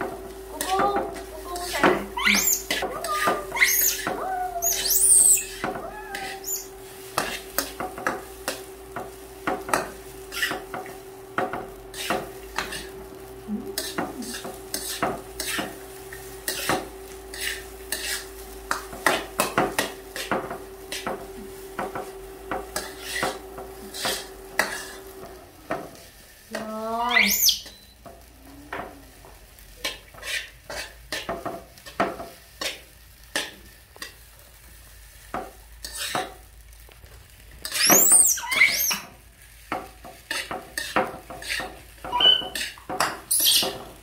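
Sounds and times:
light sizzle: 0.0 - 44.0
metal spatula scraping wok: 0.6 - 8.8, 9.7 - 10.8, 11.9 - 13.0, 13.7 - 21.8, 22.7 - 25.2, 29.8 - 34.3, 35.1 - 36.4, 37.6 - 44.0.

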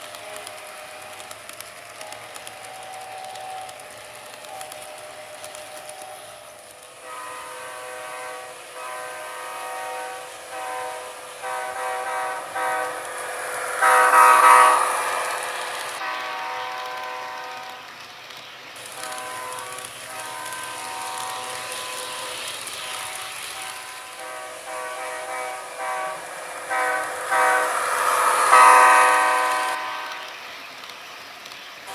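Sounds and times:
faint model train rolling: 0.0 - 31.9
model train horn blasts: 7.0 - 13.1, 13.8 - 15.4, 16.0 - 17.8, 19.0 - 30.3.

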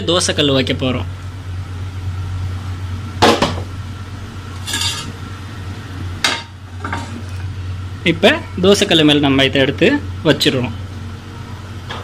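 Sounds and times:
steady low hum: 0.0 - 12.0
metal cookware clanking: 4.6 - 5.2.

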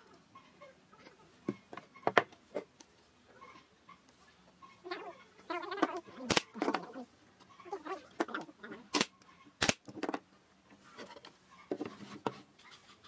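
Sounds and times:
poultry calling: 0.0 - 2.7, 3.3 - 9.6
nail gun firing into wood: 6.3 - 6.5, 8.9 - 9.9.

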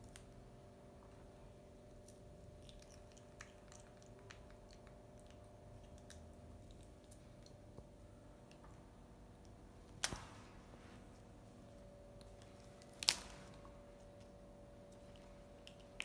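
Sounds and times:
low steady hum: 0.0 - 16.0
monkey chewing: 2.6 - 7.5.

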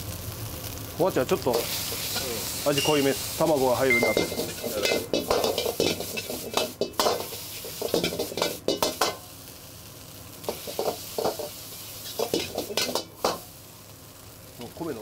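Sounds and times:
food sizzling: 0.0 - 15.0
ladle knocking on a wok: 3.9 - 9.2, 12.2 - 13.4.

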